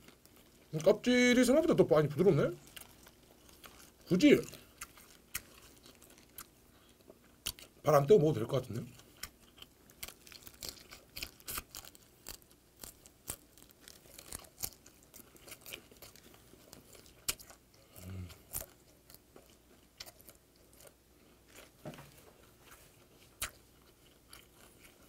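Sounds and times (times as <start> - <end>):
chewing crunchy shrimp shell: 0.0 - 1.0, 2.5 - 7.8, 8.9 - 25.0.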